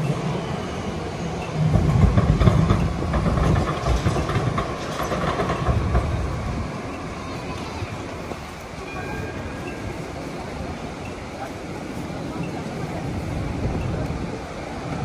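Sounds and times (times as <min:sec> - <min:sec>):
rail vehicle rumbling past: 0:00.0 - 0:15.0.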